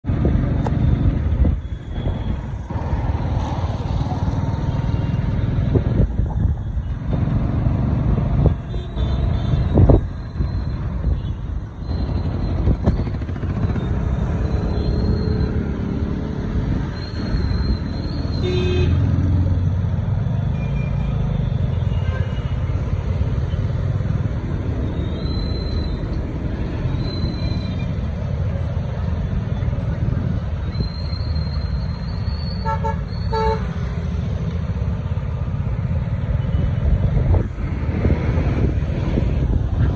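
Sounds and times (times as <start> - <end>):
traffic noise: 0.0 - 39.9
wind rumble on microphone: 5.6 - 8.6, 9.6 - 11.1, 36.8 - 39.9
vehicle horn toots: 18.4 - 19.0.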